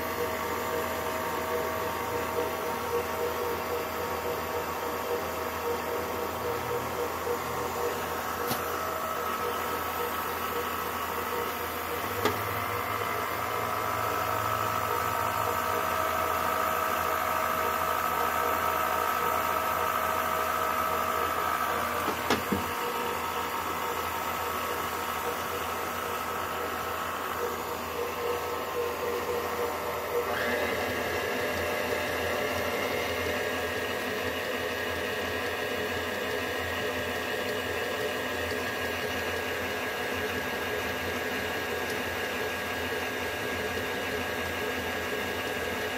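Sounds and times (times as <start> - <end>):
stand mixer motor whining: 0.0 - 45.9
sharp click: 8.4 - 8.7.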